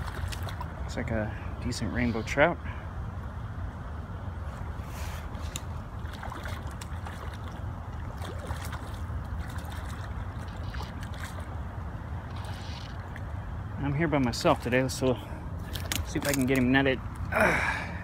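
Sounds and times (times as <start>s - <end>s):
fish splashing in water: 0.0s - 0.8s, 5.4s - 13.6s, 15.6s - 16.6s.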